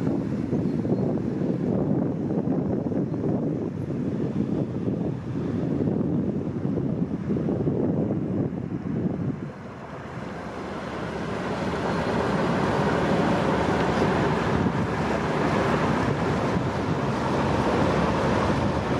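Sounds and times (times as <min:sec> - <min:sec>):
ship wake water rushing: 0:00.0 - 0:18.9
wind buffeting microphone: 0:00.0 - 0:18.9.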